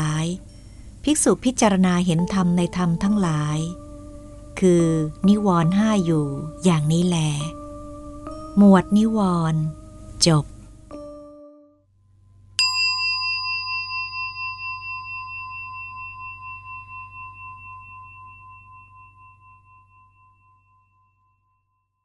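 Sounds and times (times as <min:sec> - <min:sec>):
singing bowl ringing: 0:00.0 - 0:00.8, 0:01.9 - 0:09.1, 0:12.6 - 0:21.9
faint low hum: 0:00.0 - 0:11.2.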